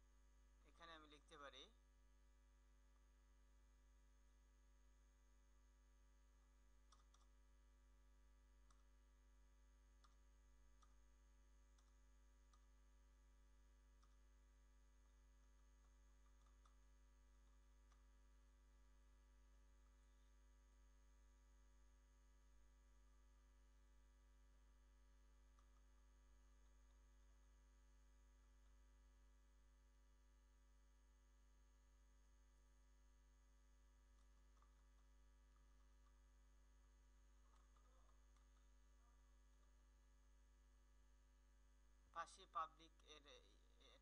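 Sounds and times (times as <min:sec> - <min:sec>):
faint electrical hum: 0:00.0 - 0:44.0
keyboard keys clicking: 0:06.9 - 0:07.3.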